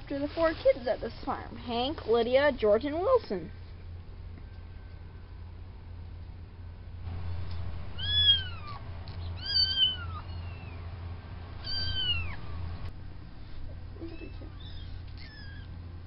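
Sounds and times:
kittens mewing: 0:08.0 - 0:10.8, 0:11.6 - 0:12.4, 0:14.0 - 0:15.9.

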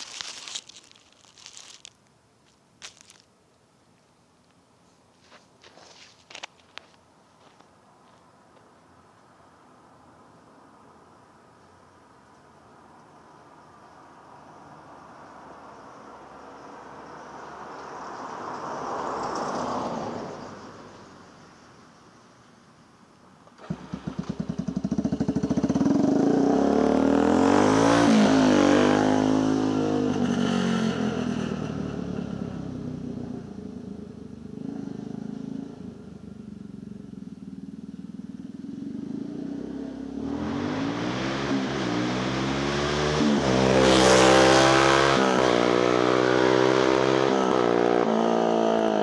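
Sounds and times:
atv engine revving: 0:23.6 - 0:37.8, 0:38.4 - 0:49.0.

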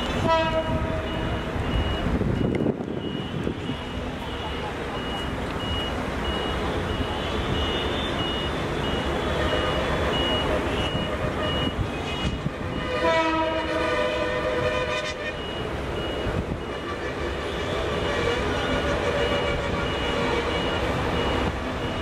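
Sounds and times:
train and traffic rumble: 0:00.0 - 0:22.0
train horn: 0:00.2 - 0:01.4, 0:11.1 - 0:15.4, 0:16.8 - 0:20.7
high beeps: 0:01.1 - 0:12.4.

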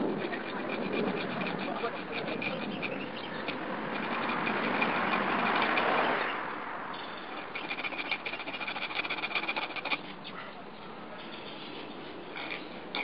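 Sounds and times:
hand saw rasping: 0:00.0 - 0:06.5, 0:07.1 - 0:10.2.

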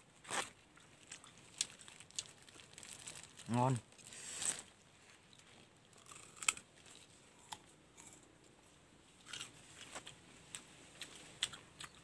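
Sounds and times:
apple crunching: 0:06.0 - 0:08.2.

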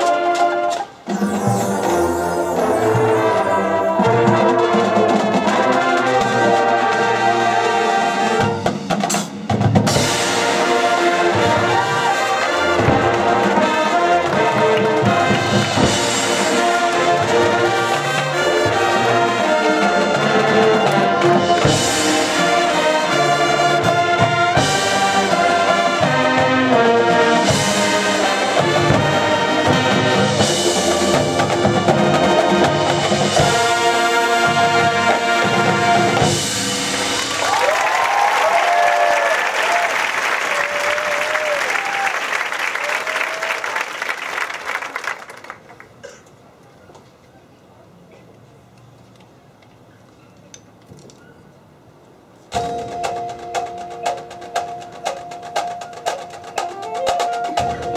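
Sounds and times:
marching band playing: 0:00.0 - 0:45.7, 0:52.5 - 0:57.9
drumline: 0:00.0 - 0:45.8, 0:52.5 - 0:57.9
crowd cheering and whistling: 0:37.1 - 0:45.4.

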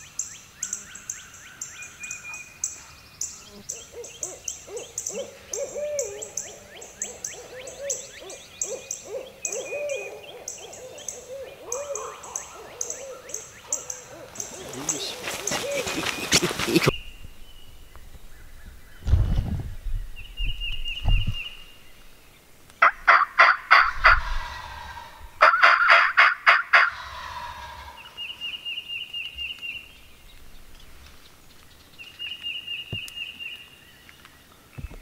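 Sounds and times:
songbird trill: 0:00.0 - 0:23.0, 0:26.9 - 0:35.0
wild turkey gobbling: 0:03.7 - 0:16.9, 0:22.8 - 0:28.6.

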